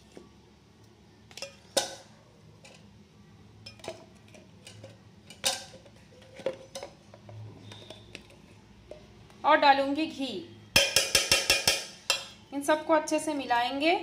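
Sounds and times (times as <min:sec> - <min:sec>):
faint low hum: 0:00.0 - 0:11.0
kitchen utensils clinking: 0:03.6 - 0:09.0, 0:10.8 - 0:12.4.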